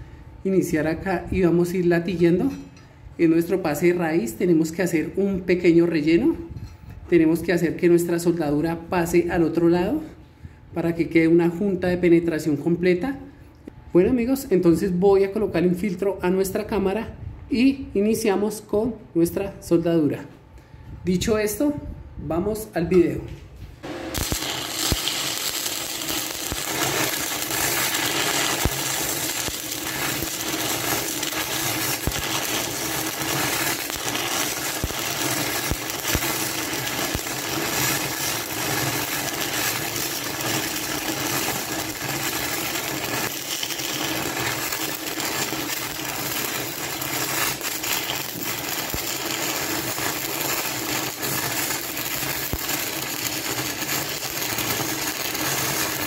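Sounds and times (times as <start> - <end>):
welding arc crackling: 23.8 - 56.0.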